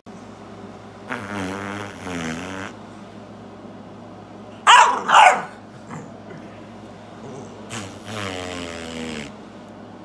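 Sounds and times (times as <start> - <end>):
man blowing buzzing raspberry: 1.0 - 2.9, 7.6 - 9.4.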